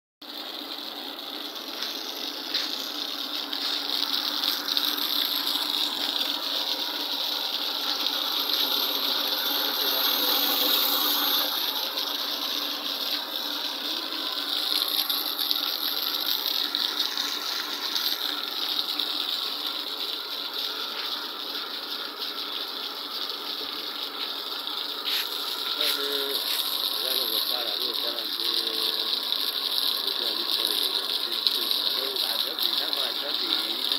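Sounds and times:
pump rattling: 0.2s - 33.9s
liquid jet spraying hiss: 8.6s - 11.9s, 25.0s - 29.1s.

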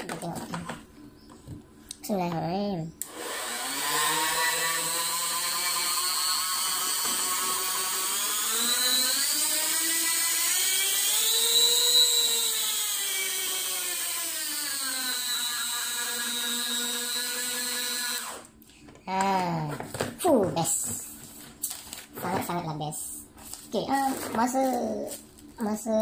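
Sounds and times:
rotary tool motor whine: 3.0s - 18.5s.

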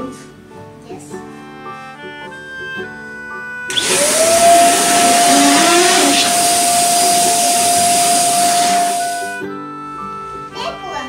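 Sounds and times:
electric blower motor whine: 3.7s - 9.4s.

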